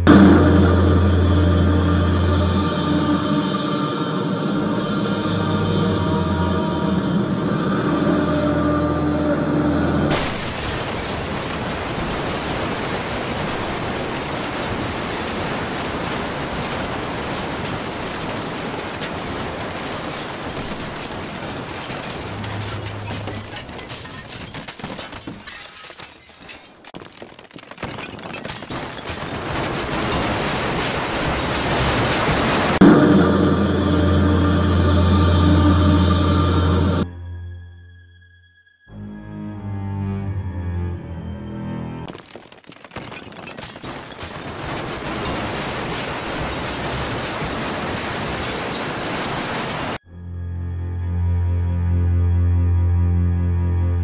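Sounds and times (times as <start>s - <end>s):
cracks and crackling debris: 10.1s - 32.8s, 42.1s - 50.0s
crash of falling rubble: 10.1s - 32.9s, 42.1s - 50.0s.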